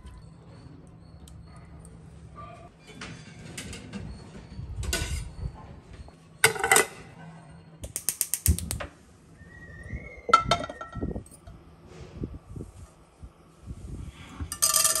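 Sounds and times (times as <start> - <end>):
gas stove igniter clicking: 7.8 - 8.9.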